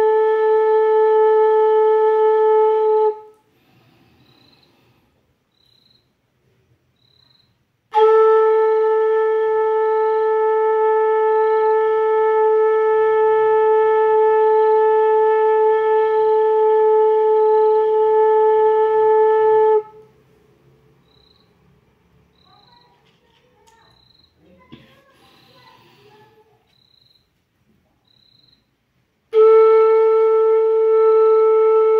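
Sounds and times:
bamboo flute long note: 0:00.0 - 0:03.4, 0:07.9 - 0:20.1, 0:29.3 - 0:31.9.

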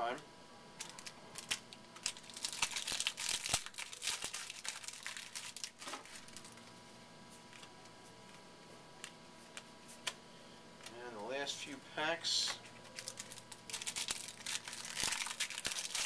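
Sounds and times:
wrapper torn and crinkled: 0:00.8 - 0:06.6, 0:12.7 - 0:16.0.

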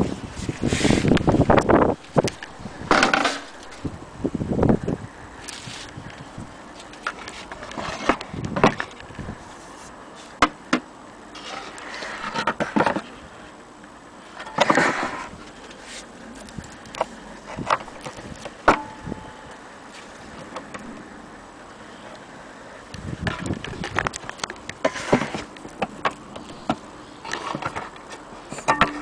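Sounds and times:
rustling: 0:14.2 - 0:19.1.

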